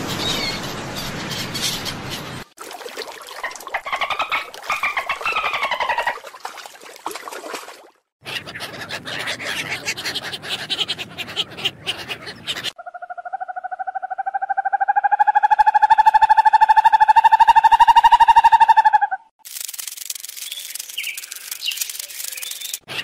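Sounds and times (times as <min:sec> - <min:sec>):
gulls calling: 0:03.3 - 0:06.3, 0:08.2 - 0:19.3
ducks calling: 0:03.4 - 0:06.2, 0:08.2 - 0:13.6
dolphin clicks and whistles: 0:13.2 - 0:19.3, 0:20.3 - 0:23.0.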